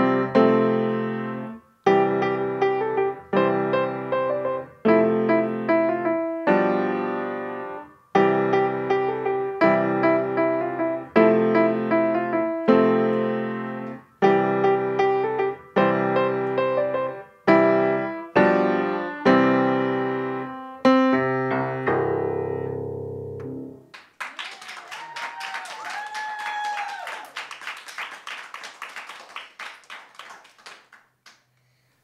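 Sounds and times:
acoustic piano playing chords: 0:00.0 - 0:23.9
audience clapping: 0:23.9 - 0:31.5
audience cheering: 0:24.2 - 0:30.8.

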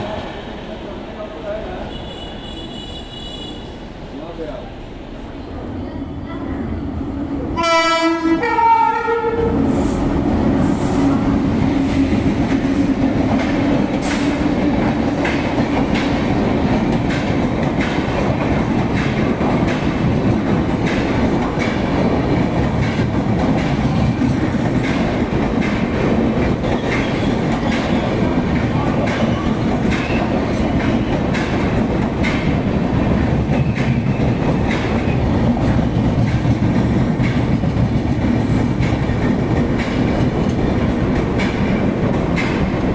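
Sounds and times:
train rumbling past: 0:00.0 - 0:42.9
train horn blast: 0:07.6 - 0:09.6.

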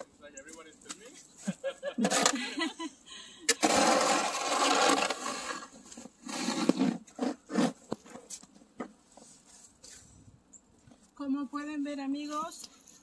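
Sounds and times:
snow shovel scraping slushy snow: 0:03.6 - 0:07.8.

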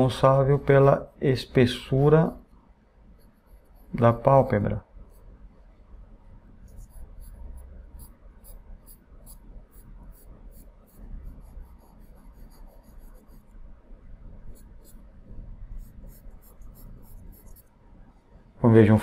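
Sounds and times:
pencil scratching on paper: 0:03.2 - 0:04.3, 0:06.7 - 0:13.6, 0:14.5 - 0:17.7.

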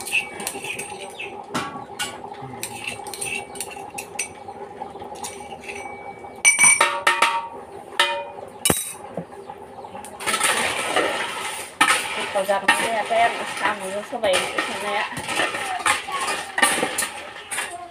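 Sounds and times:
metal pots clinking: 0:00.0 - 0:04.5, 0:05.1 - 0:09.2, 0:10.2 - 0:17.9
ringing metal strikes: 0:05.2 - 0:09.0.

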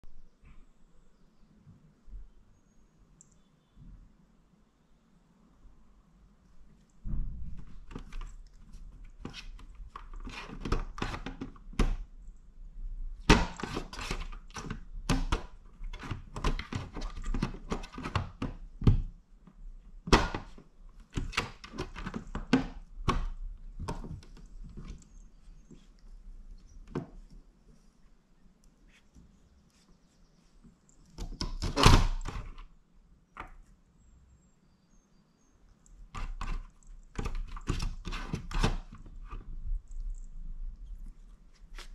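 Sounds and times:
cat clawing at plastic cat flap: 0:07.4 - 0:12.1, 0:13.2 - 0:19.1, 0:20.0 - 0:25.0, 0:36.1 - 0:39.5.

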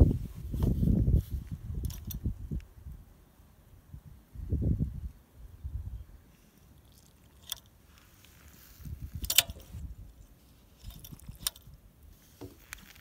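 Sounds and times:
handling rustle near microphone: 0:00.0 - 0:02.3, 0:06.3 - 0:13.0.

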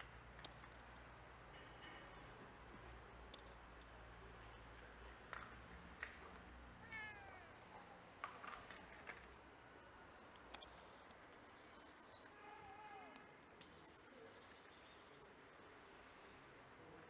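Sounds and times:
cat meowing: 0:06.8 - 0:07.6.

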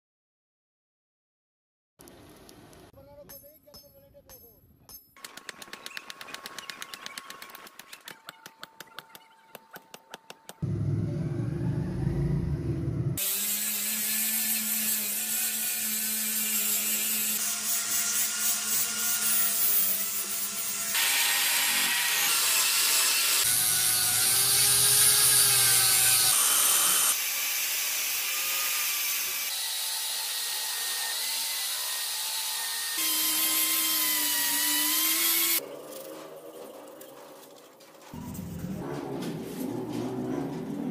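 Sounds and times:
hammer striking steel on anvil: 0:03.2 - 0:05.2
loud low hum: 0:10.6 - 0:13.2
power tools grinding steel: 0:13.2 - 0:38.0.

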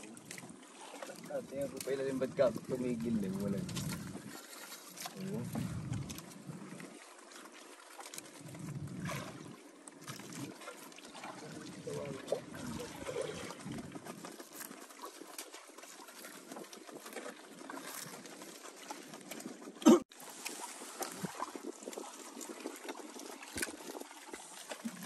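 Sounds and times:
water trickling softly: 0:00.0 - 0:25.0.

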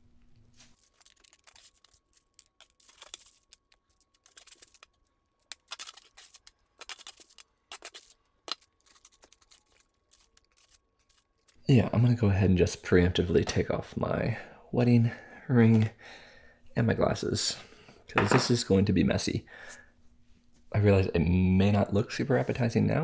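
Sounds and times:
foil crinkling: 0:00.6 - 0:11.6.

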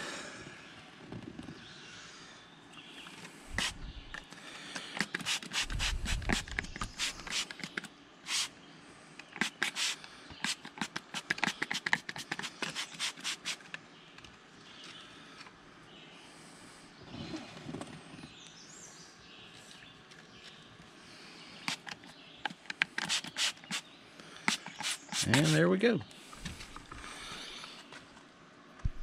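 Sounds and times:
spray bottle spritzing: 0:03.5 - 0:03.8, 0:05.0 - 0:08.5, 0:09.4 - 0:13.7, 0:22.9 - 0:23.8, 0:24.5 - 0:25.6.

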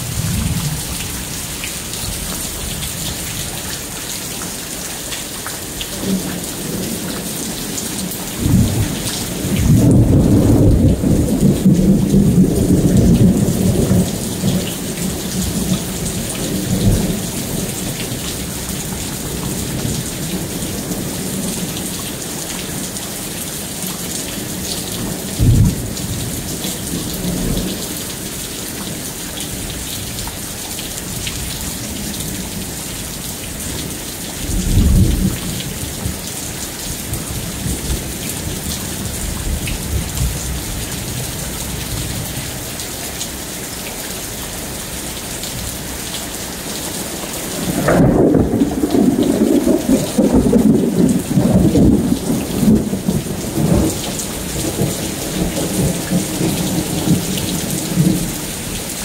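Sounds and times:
heavy rain hissing: 0:00.0 - 0:59.0
thunder rolling: 0:47.6 - 0:54.0.

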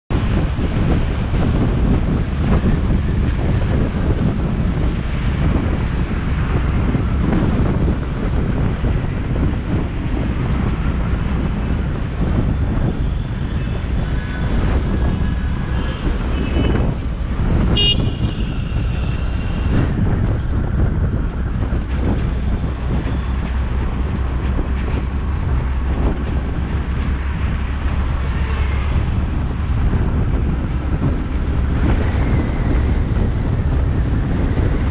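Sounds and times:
car interior road rumble: 0:00.1 - 0:34.9
car horn toots: 0:17.6 - 0:19.7.

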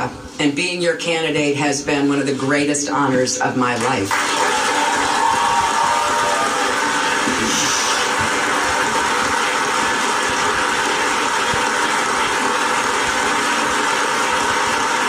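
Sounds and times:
crowd applauding through speaker: 0:04.1 - 0:15.0.

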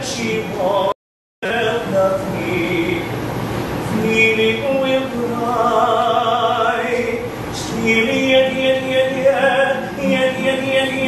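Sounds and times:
man singing classically: 0:00.0 - 0:03.2, 0:03.8 - 0:11.0
classical guitar accompaniment: 0:01.5 - 0:03.1, 0:03.7 - 0:11.0.

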